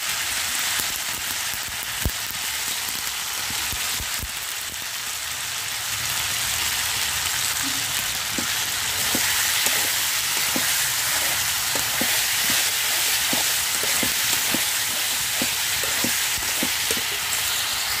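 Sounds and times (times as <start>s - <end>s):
vegetables sizzling in hot oil: 0.0s - 18.0s
steel spatula scraping a pan: 8.3s - 17.6s.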